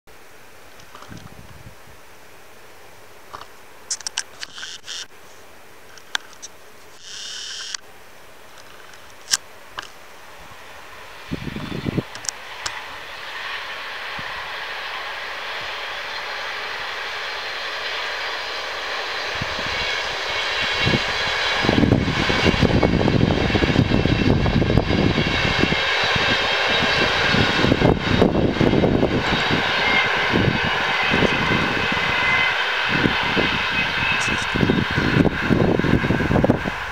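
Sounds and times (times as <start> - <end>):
locomotive high whine: 0.1 - 36.9
train wheels rushing on rail: 8.6 - 36.9.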